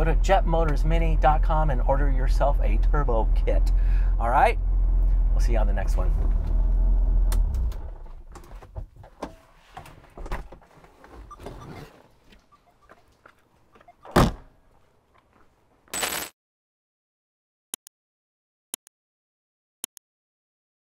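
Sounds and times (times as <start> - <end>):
car engine dying: 0.0 - 8.4
car door thunk: 14.0 - 14.5.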